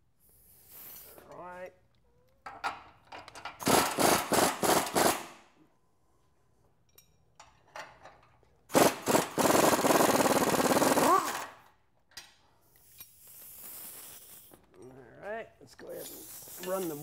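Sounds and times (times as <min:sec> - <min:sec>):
impact wrench hammering: 0:03.6 - 0:05.3.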